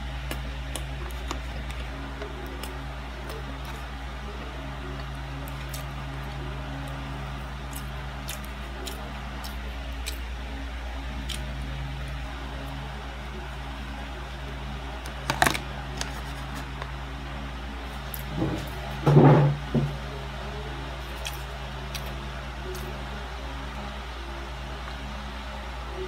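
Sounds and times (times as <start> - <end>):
fan humming: 0.0 - 26.0.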